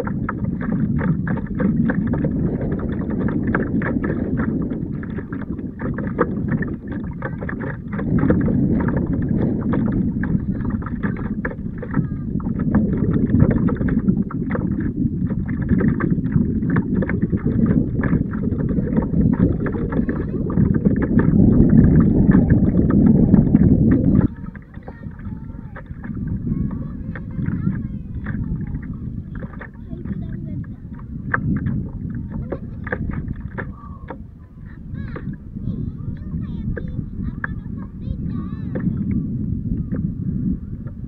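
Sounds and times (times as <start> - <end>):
water lapping against kayak hull: 0.0 - 41.0
wind buffeting microphone: 0.0 - 41.0.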